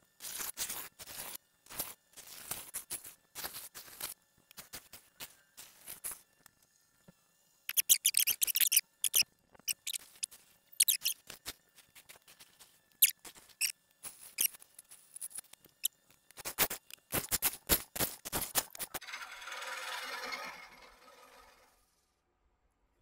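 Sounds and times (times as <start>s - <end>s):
lathe gouge scraping wood: 19.0s - 21.9s.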